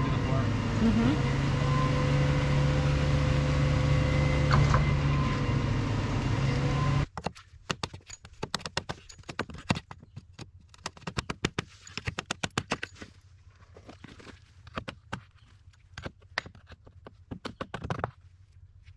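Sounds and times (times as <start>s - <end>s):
large engine humming: 0.0s - 7.1s.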